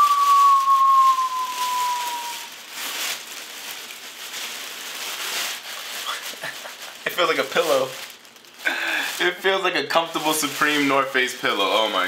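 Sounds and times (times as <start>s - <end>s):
thin whistling tone: 0.0s - 2.5s
jacket and packaging rustling: 0.0s - 12.0s.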